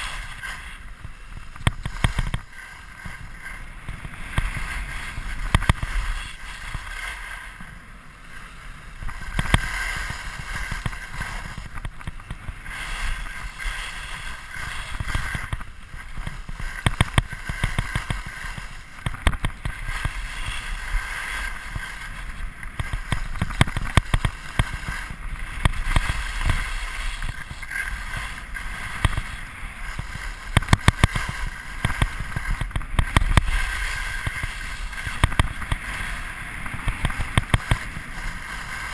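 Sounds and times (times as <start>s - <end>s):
skis scraping over snow: 0.0s - 38.9s.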